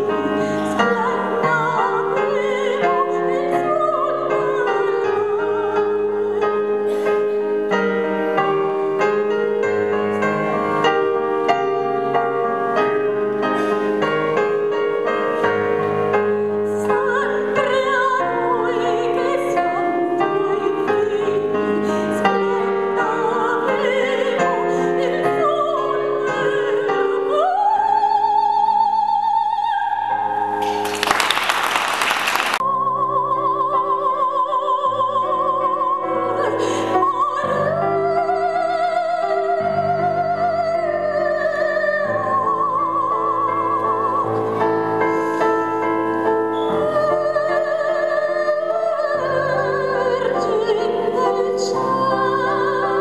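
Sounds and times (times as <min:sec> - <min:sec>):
woman singing with vibrato: 0:00.0 - 0:06.8, 0:16.7 - 0:31.4, 0:32.3 - 0:44.8, 0:46.7 - 0:53.0.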